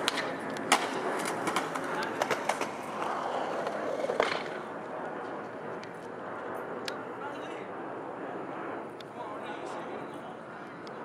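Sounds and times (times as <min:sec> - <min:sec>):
skateboard clacking on ground: 0:00.0 - 0:04.7
wheels rolling on concrete: 0:00.0 - 0:06.2.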